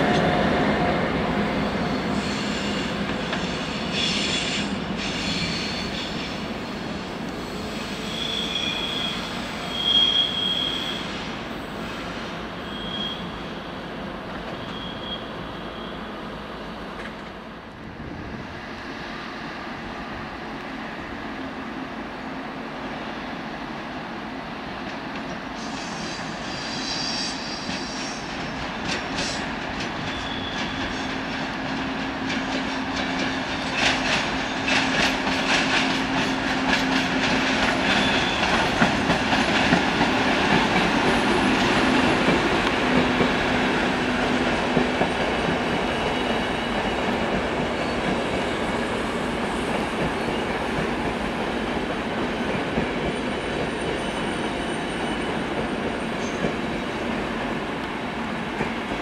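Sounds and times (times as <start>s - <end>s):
high wheel squeals: 1.5s - 13.6s, 14.4s - 16.2s, 25.6s - 28.4s, 29.2s - 31.3s, 37.8s - 39.0s, 53.0s - 56.6s
train wheels clicking over rail joints: 24.8s - 59.0s.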